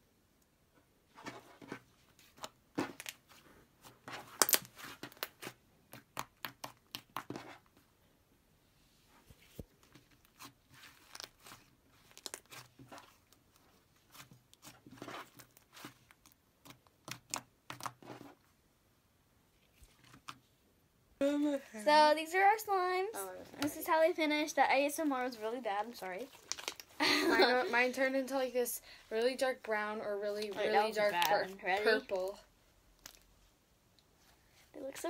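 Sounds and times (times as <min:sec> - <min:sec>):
slime being kneaded by hand: 0:01.4 - 0:07.9, 0:09.4 - 0:18.4, 0:25.0 - 0:27.0
sticky clicks and crackles: 0:09.9 - 0:18.1, 0:26.1 - 0:27.0.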